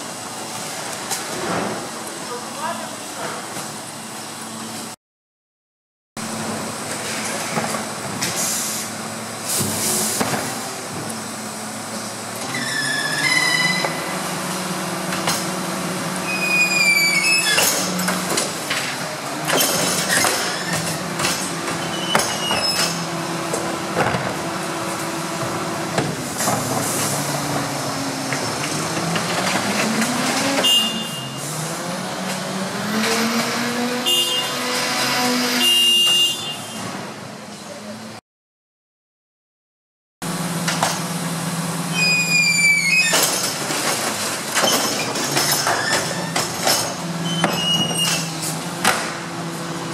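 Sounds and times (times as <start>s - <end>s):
garbage truck engine and hydraulics: 6.2s - 38.2s, 40.2s - 49.9s
high squeals: 12.5s - 14.1s, 16.2s - 18.0s, 41.9s - 43.3s.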